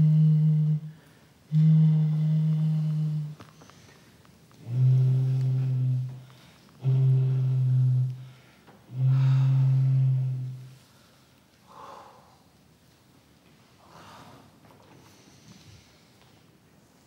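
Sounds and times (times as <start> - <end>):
gourd horn low notes: 0.0 - 3.5, 4.6 - 8.3, 8.9 - 10.8
faint breath: 3.4 - 12.5, 13.8 - 16.4.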